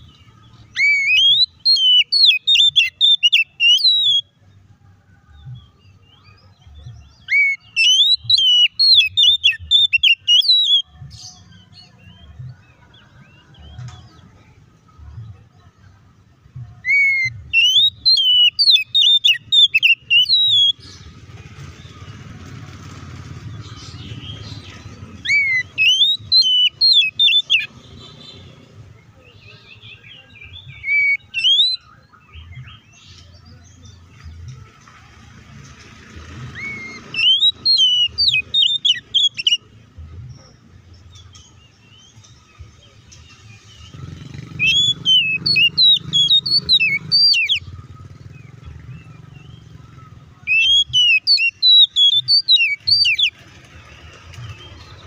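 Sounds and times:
bird singing whistled notes: 0.0s - 4.4s, 5.4s - 13.8s, 16.8s - 21.2s, 23.5s - 28.4s, 29.3s - 34.2s, 36.4s - 39.8s, 40.9s - 53.4s.

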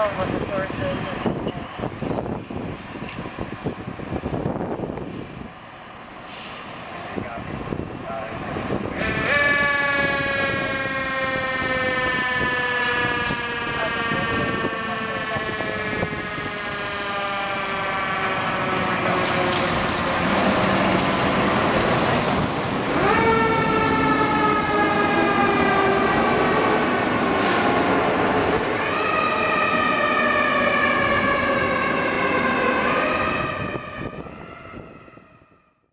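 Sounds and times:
mechanical siren wailing: 9.0s - 19.6s, 21.8s - 26.4s, 28.7s - 35.8s.

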